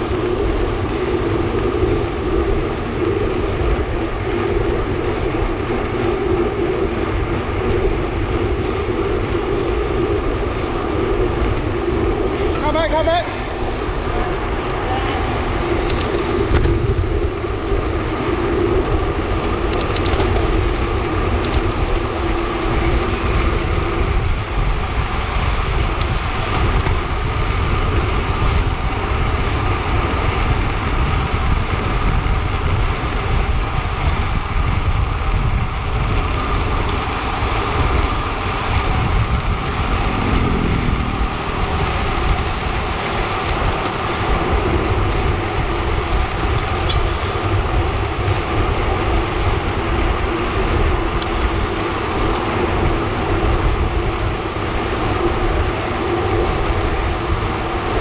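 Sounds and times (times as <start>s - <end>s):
bike tyres humming on tarmac: 0.0s - 58.0s
wind rushing over microphone: 0.0s - 58.0s.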